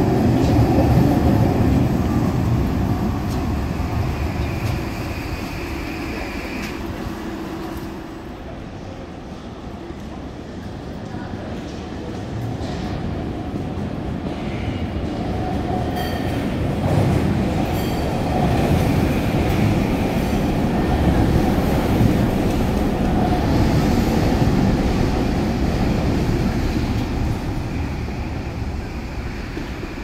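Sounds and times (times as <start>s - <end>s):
train rumbling past: 0.0s - 10.8s, 11.4s - 30.0s.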